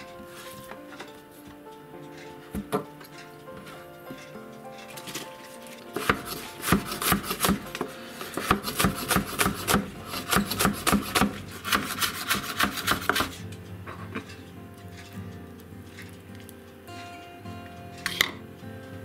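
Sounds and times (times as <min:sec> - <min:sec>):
knife chopping on wooden board: 0:06.0 - 0:13.4.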